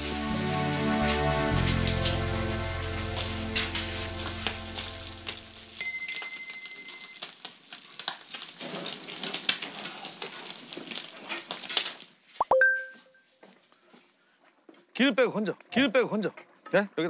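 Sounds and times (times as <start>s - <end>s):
meat sizzling on a griddle: 0.0s - 12.1s
short bright ding: 12.4s - 13.2s.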